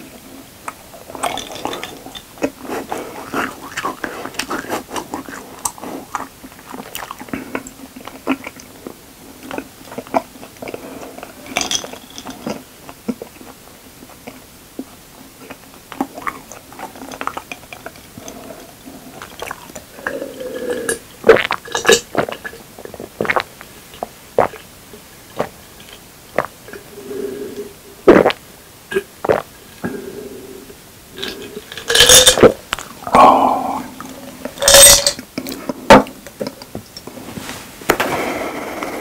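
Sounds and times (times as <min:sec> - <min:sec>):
person chewing wetly: 0:01.1 - 0:24.7, 0:25.3 - 0:26.9, 0:28.1 - 0:30.0
mouth clicks: 0:23.2 - 0:24.7, 0:27.5 - 0:30.1.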